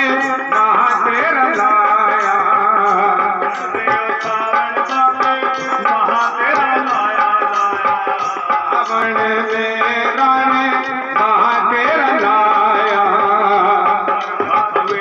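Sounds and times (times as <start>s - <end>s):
steady drum beat: 0.0s - 15.0s.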